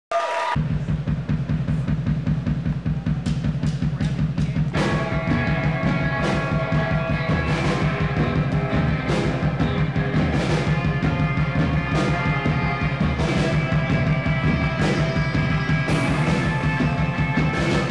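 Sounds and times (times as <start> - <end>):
rock band playing live: 0.6 - 17.9
cymbal crashes: 15.9 - 17.9.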